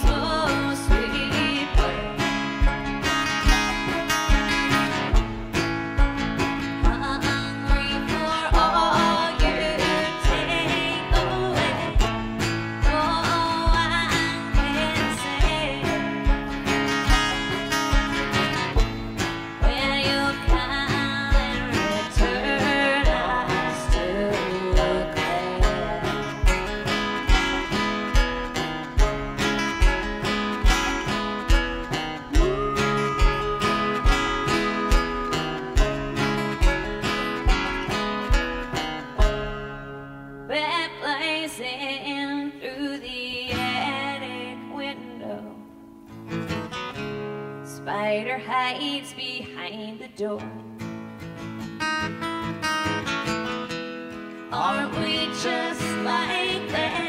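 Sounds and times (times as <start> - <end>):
woman singing: 0.0 - 5.2, 6.5 - 18.7, 19.5 - 28.0, 32.2 - 37.6, 40.5 - 45.8, 47.7 - 50.8, 54.5 - 57.0
acoustic guitar strumming: 0.0 - 42.1, 43.2 - 57.0
banjo picking: 0.0 - 57.0.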